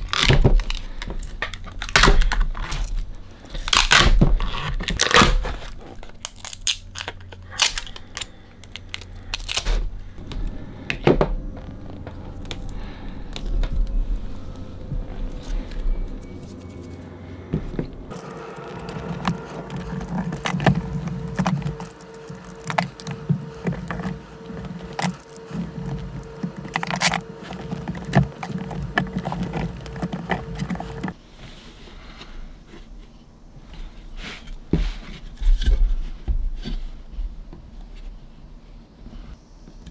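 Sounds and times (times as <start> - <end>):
plastic film crinkling: 0.0 - 10.5, 18.1 - 31.2
mould material cracking: 0.0 - 16.6, 18.0 - 31.2.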